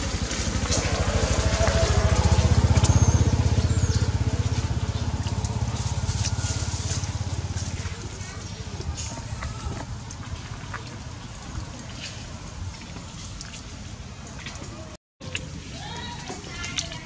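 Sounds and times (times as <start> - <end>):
engine pulsing: 0.0 - 13.2.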